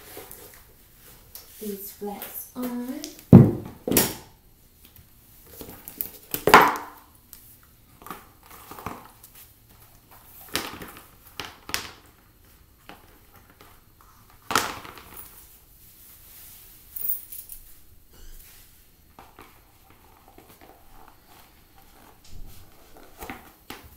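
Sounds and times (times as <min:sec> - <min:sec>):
shoes knocking on tile floor: 0:02.6 - 0:04.2.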